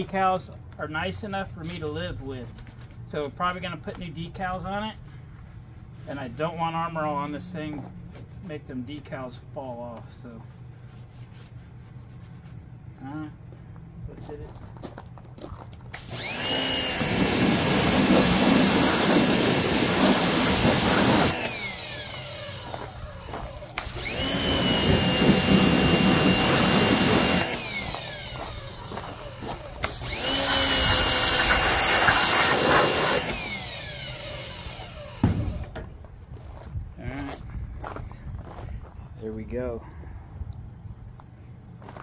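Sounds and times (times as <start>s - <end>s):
pressure washer whine: 15.9s - 35.9s.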